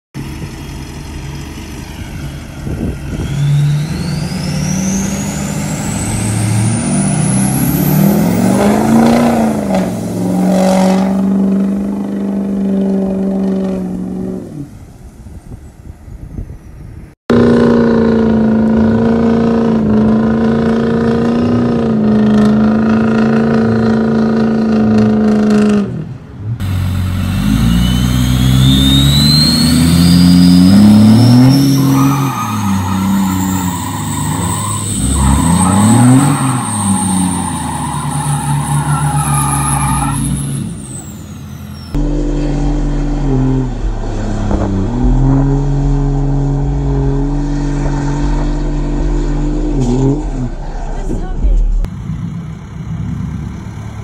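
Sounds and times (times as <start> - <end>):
truck engines revving: 0.2 - 15.4, 16.9 - 54.0
high rising whistle: 3.2 - 11.0, 27.2 - 51.0.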